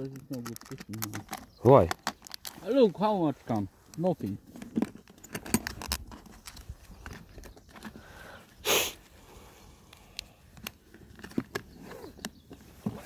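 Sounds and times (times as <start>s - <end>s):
person sniffing: 8.0s - 9.7s.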